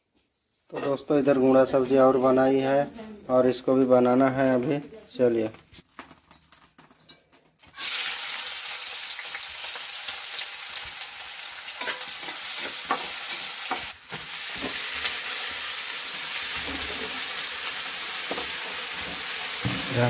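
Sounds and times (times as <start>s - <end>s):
onion sizzling in hot oil: 7.6s - 20.0s.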